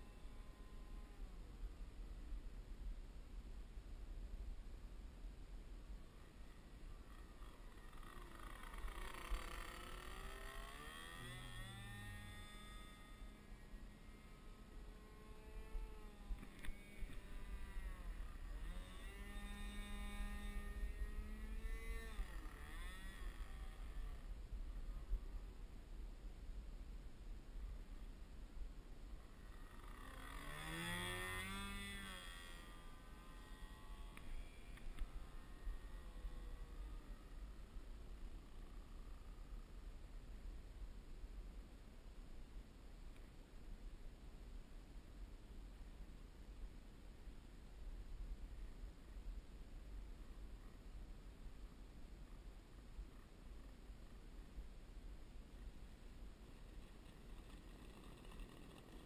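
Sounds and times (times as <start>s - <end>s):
model plane engine flying past: 0.0s - 2.3s, 5.9s - 25.8s, 29.0s - 40.2s, 55.6s - 59.0s.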